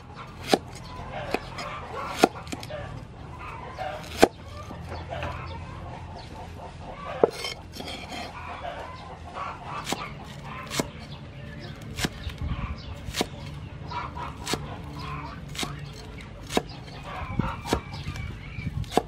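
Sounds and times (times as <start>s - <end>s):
chickens clucking: 0.0s - 19.0s
cleaver chopping on wooden board: 0.3s - 2.7s, 4.0s - 4.4s, 9.8s - 11.0s, 11.8s - 12.4s, 13.0s - 13.5s, 14.4s - 14.8s, 15.5s - 17.0s, 17.6s - 19.0s.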